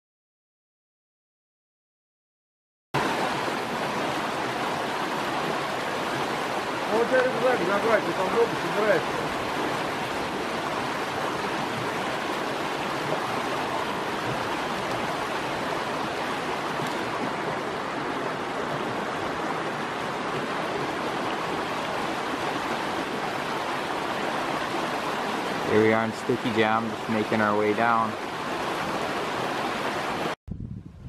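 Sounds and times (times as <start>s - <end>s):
creek water rushing: 3.0s - 30.4s.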